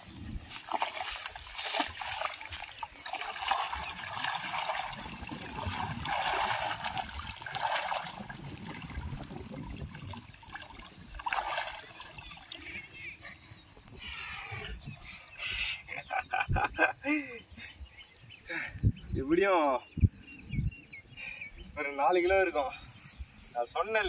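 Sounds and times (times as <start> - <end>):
water splashing: 0.4 - 12.9
water trickling and dripping: 0.5 - 12.8.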